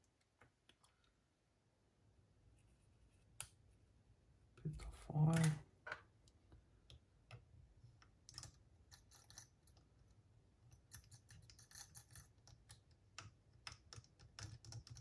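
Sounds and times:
small parts clicking and scraping: 7.9 - 15.0.

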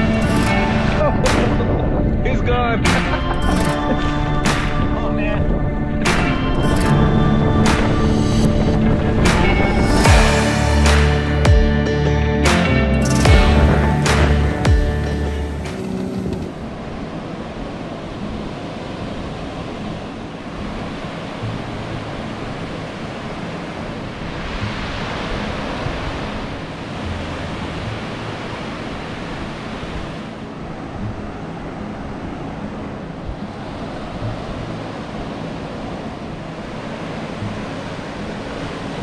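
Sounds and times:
wind on microphone: 0.0 - 11.0
surf washing up beach: 0.0 - 11.4, 12.4 - 39.0
background music: 0.0 - 39.0.

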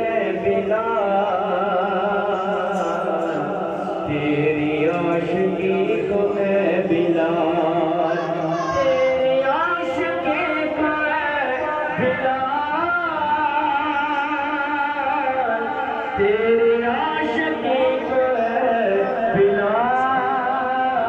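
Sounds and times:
man singing unaccompanied: 0.0 - 21.0.

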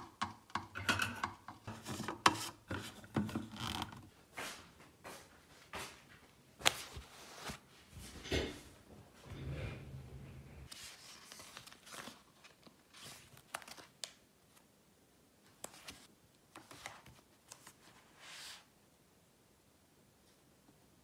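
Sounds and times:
paper rustling and crinkling: 6.6 - 8.2, 10.7 - 14.6, 15.5 - 18.7
low hum: 8.9 - 10.7.

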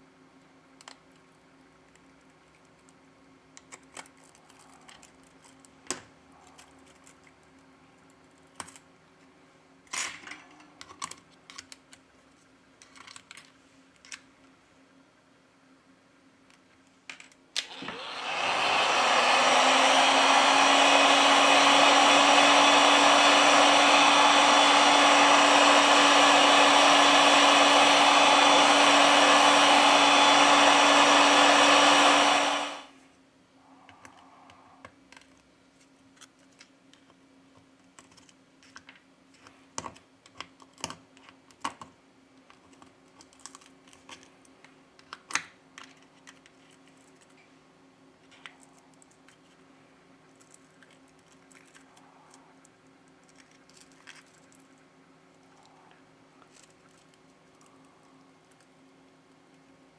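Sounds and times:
heat gun blowing: 17.6 - 33.0.

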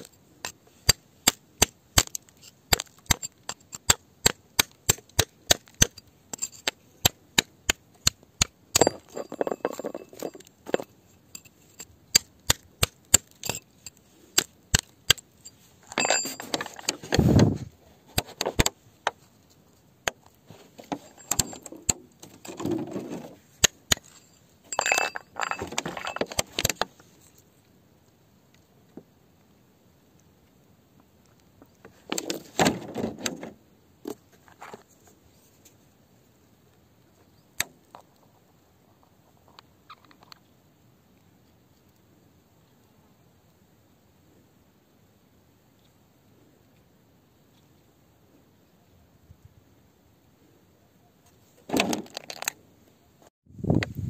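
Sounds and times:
metal tool tapping on stone: 2.7 - 15.2
gravel scraping and crunching: 20.4 - 27.4, 51.3 - 52.6.

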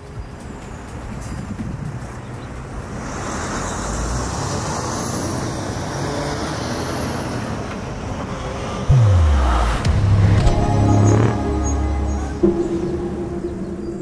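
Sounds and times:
passing vehicles rushing: 2.0 - 13.7.

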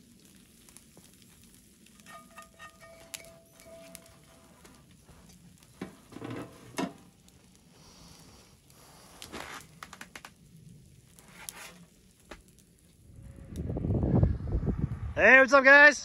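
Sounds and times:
skillet set down on metal stove: 2.0 - 4.2, 5.8 - 7.1
spatula scraping a skillet: 2.0 - 7.0, 11.2 - 11.9.

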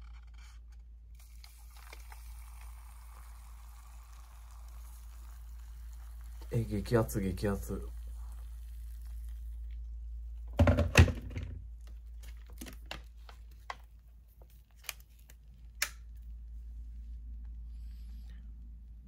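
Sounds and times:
cup knock and rattle: 10.5 - 11.6.

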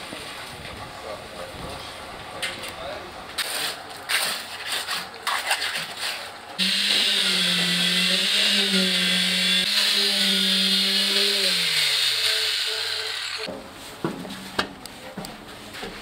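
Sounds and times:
trowel scraping wet concrete: 3.4 - 13.2.

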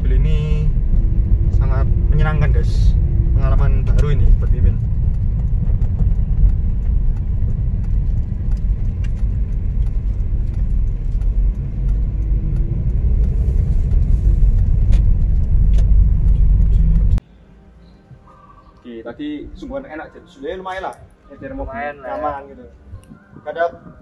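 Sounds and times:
car engine and road rumble: 0.0 - 18.3.

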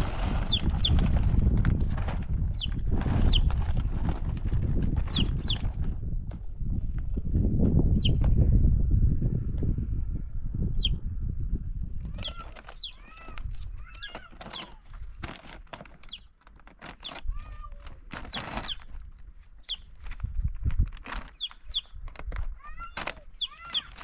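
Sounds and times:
plastic sheeting rustling: 0.0 - 5.9, 12.1 - 24.0
birds calling: 12.1 - 14.8, 15.9 - 17.2, 18.2 - 18.9, 19.6 - 20.0, 21.3 - 22.0, 22.9 - 24.0.

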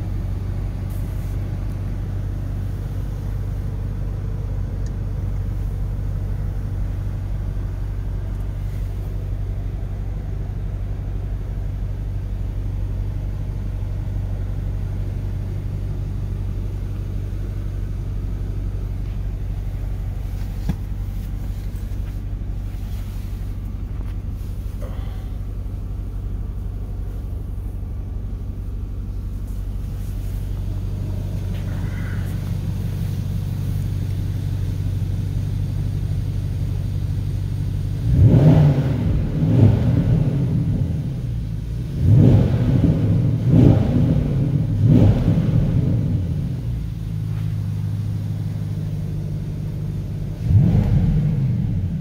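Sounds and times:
car engine idling and revving: 0.0 - 52.0.

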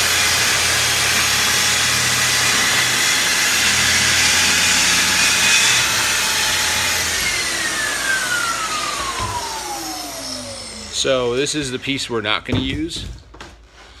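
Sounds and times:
saw blade winding down: 0.0 - 12.2
track saw cutting wood: 0.0 - 12.3.

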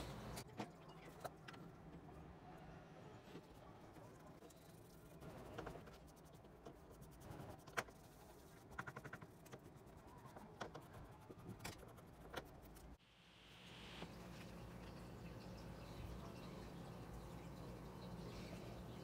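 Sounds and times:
low steady hum: 13.2 - 19.0.

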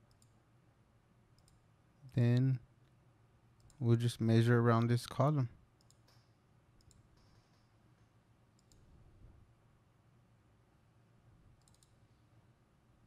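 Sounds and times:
faint computer mouse clicks: 0.1 - 0.4, 5.8 - 7.6, 8.6 - 8.9, 11.6 - 12.0.

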